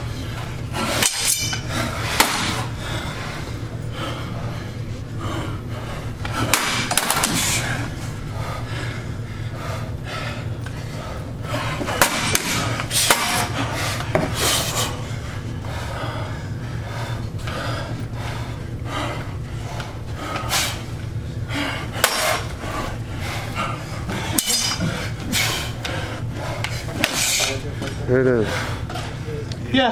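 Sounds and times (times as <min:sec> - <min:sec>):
low hum: 0:00.0 - 0:29.7
machetes clanking on metal: 0:00.9 - 0:02.5, 0:11.9 - 0:13.5, 0:22.0 - 0:22.4, 0:24.3 - 0:24.9.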